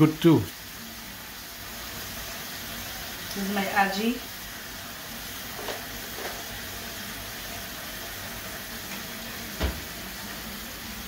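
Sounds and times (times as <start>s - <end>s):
fish sizzling in a pan: 0.0s - 11.0s
dull thump: 9.6s - 9.8s.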